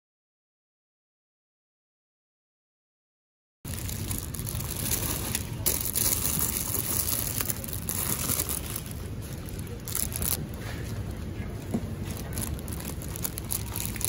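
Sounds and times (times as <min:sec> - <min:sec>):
low steady rumble: 0:03.7 - 0:14.0
plastic bag crinkling: 0:03.7 - 0:14.0.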